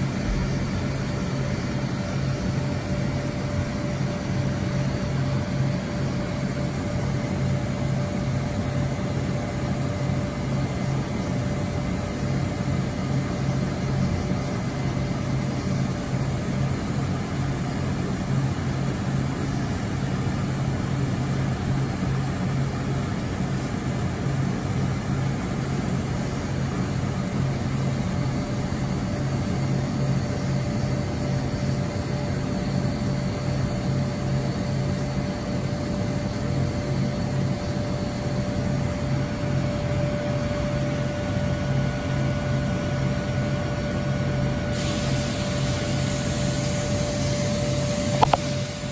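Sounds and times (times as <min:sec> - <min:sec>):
machine hum and whir: 0:00.0 - 0:48.9.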